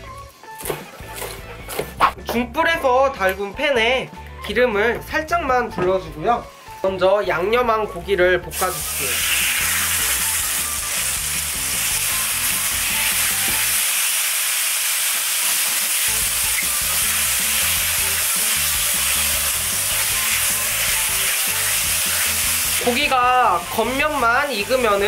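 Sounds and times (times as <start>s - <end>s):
pork sizzling in a pan: 8.5s - 25.0s.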